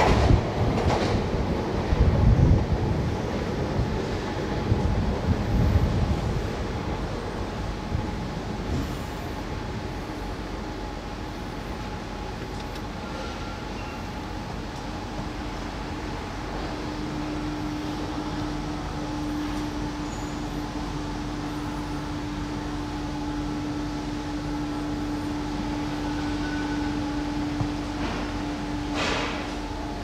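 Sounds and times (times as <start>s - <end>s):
steady low machine hum: 13.9s - 30.0s.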